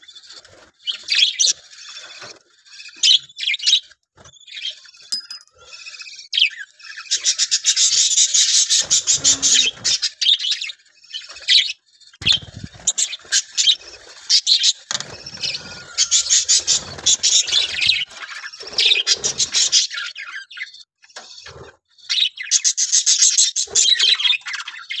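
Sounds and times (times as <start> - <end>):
budgerigars chattering: 5.6 - 24.7.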